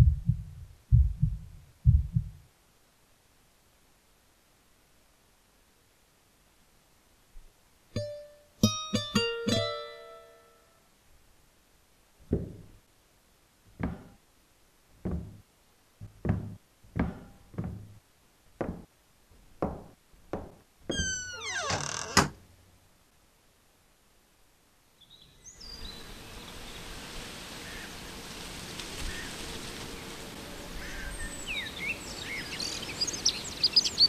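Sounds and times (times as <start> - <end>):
plucked string notes: 8.0 - 10.6
soft footsteps sliding down in pitch: 15.0 - 15.4, 16.0 - 18.0, 18.6 - 21.4
door creaking open: 19.8 - 22.4.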